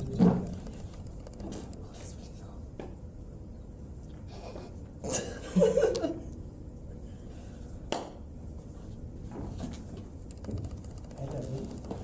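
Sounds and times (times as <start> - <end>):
rustling and plastic chairs moving: 0.0 - 1.8, 8.7 - 12.0.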